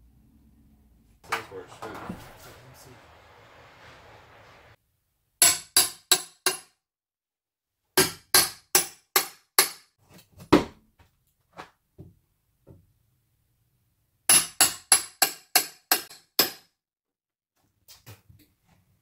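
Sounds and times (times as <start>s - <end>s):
hammer striking door frame: 5.4s - 6.7s, 8.0s - 9.9s, 14.3s - 16.7s.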